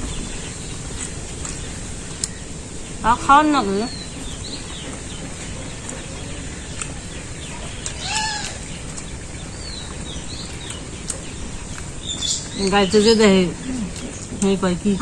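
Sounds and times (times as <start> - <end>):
faint bird chirps: 0.0 - 15.0.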